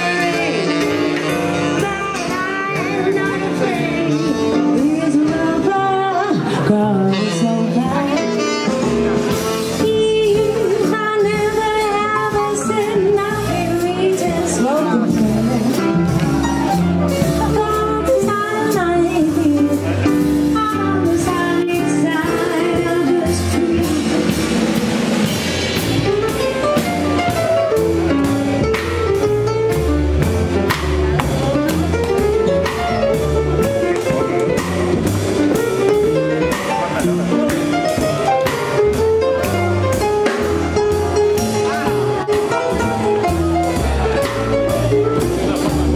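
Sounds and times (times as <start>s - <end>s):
saxophone: 0.0s - 6.2s, 6.8s - 16.0s
jazz band playing swing: 0.0s - 45.9s
woman singing: 1.6s - 8.4s, 9.8s - 16.0s, 17.3s - 24.5s.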